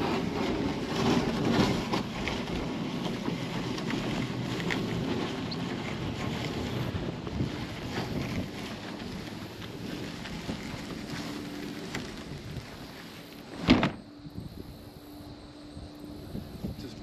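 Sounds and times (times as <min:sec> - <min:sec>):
plastic kayak scraping over grass: 0:00.0 - 0:15.1
kayak thumping onto ground: 0:13.5 - 0:14.0.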